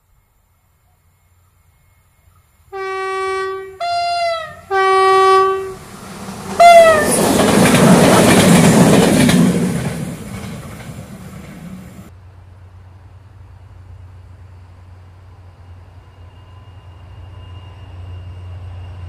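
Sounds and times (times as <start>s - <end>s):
train passing with rumble: 0.1s - 19.0s
two-tone train horn: 2.7s - 5.9s, 6.6s - 7.4s
wheel clatter: 6.0s - 12.1s.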